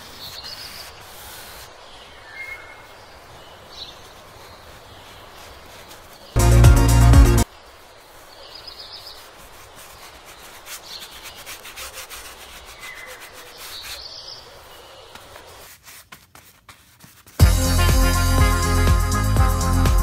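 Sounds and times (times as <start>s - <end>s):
faint scratchy rubbing: 0.0s - 1.9s, 3.6s - 6.4s, 9.0s - 17.4s
loud electronic music: 6.4s - 7.4s, 17.4s - 20.0s.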